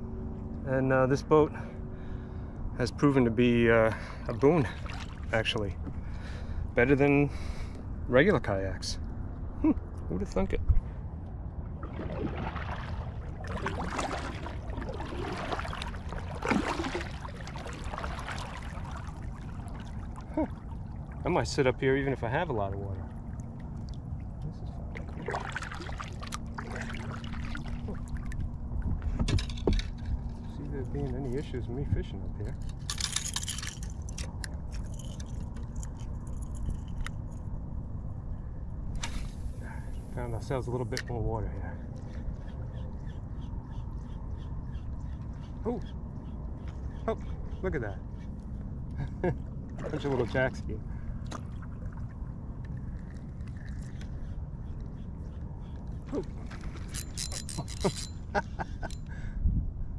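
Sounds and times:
wind rumble on microphone: 0:00.0 - 0:59.9
kayak paddle splashing: 0:04.0 - 0:05.3, 0:11.7 - 0:21.3, 0:24.8 - 0:28.4, 0:49.7 - 0:54.2
fishing reel clicks: 0:56.9 - 0:58.1.

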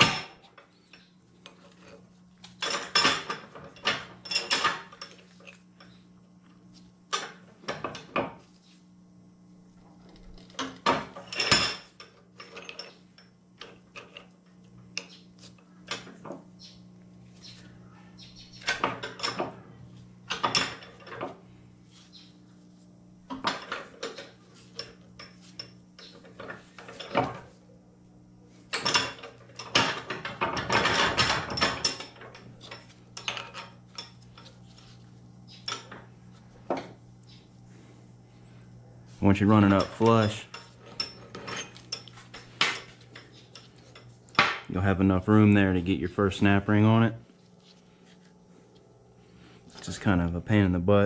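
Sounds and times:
faint steady hum: 0:00.0 - 0:51.0
metallic clicks and clanks from vise: 0:28.7 - 0:34.5.

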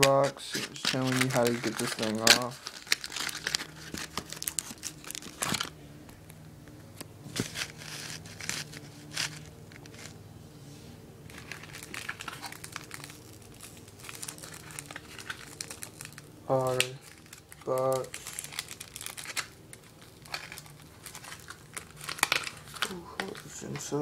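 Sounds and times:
packaging crinkling and rustling: 0:00.0 - 0:05.8, 0:07.0 - 0:10.2, 0:11.3 - 0:24.0
faint steady hum: 0:00.0 - 0:24.0.

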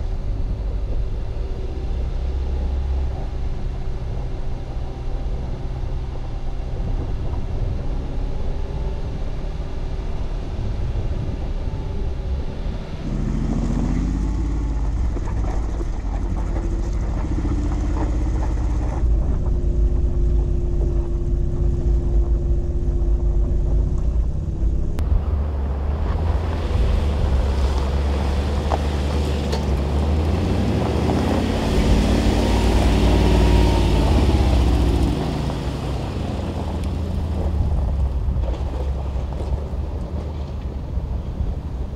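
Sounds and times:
car engine revving: 0:12.9 - 0:21.6, 0:23.3 - 0:39.9
rushing noise: 0:24.2 - 0:41.9.

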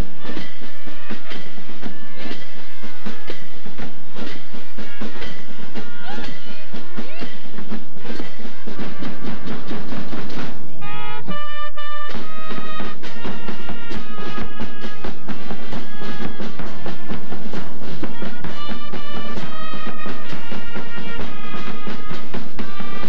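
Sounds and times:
drums beating: 0:00.0 - 0:23.0
held horn notes: 0:08.6 - 0:23.0
fanfare band playing: 0:08.7 - 0:23.0.

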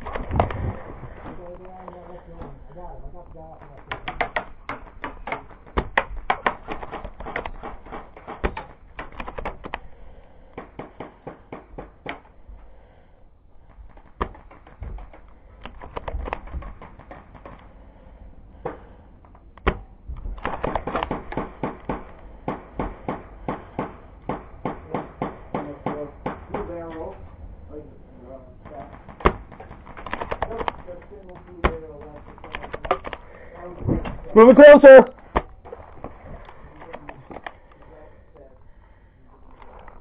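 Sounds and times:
airsoft gunfire clicks and snaps: 0:03.8 - 0:09.9, 0:13.6 - 0:17.7, 0:19.5 - 0:22.3, 0:28.6 - 0:33.3.

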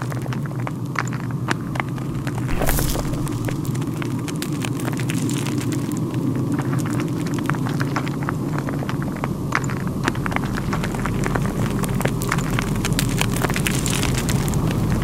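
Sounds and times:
low rumble: 0:02.5 - 0:04.6.

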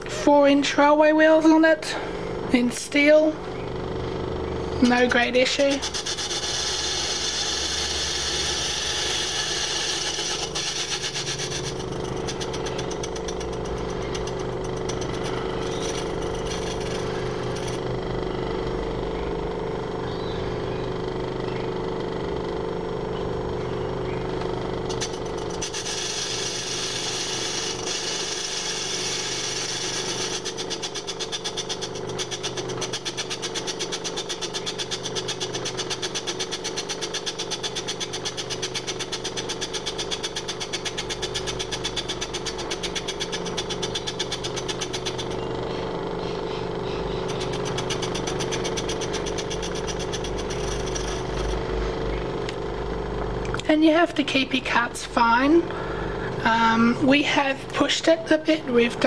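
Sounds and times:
metal lathe whirring: 0:03.8 - 0:19.6, 0:24.3 - 0:52.9.

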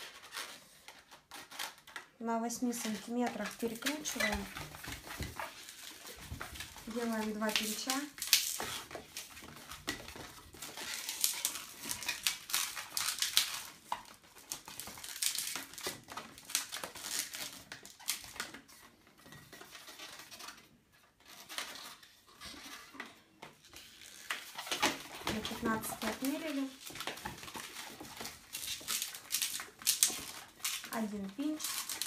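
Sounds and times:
balloon squeaking and rubbing: 0:02.7 - 0:13.8, 0:23.7 - 0:32.0.

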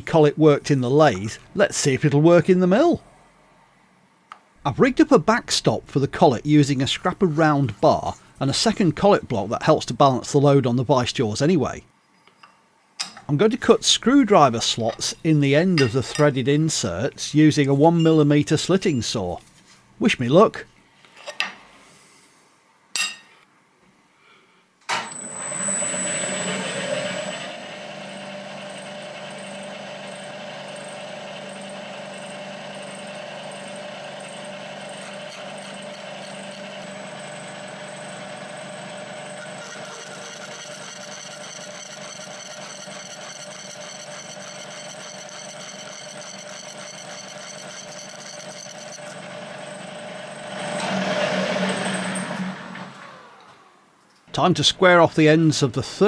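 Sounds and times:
milling machine spindle whine: 0:25.1 - 0:50.9
saw cutting metal: 0:32.9 - 0:52.5.

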